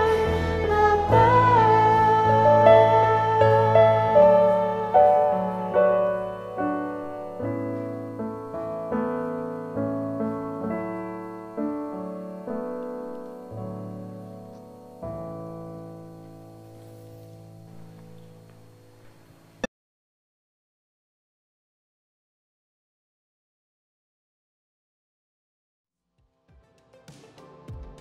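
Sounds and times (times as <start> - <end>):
slow gentle piano piece: 0.0 - 19.7.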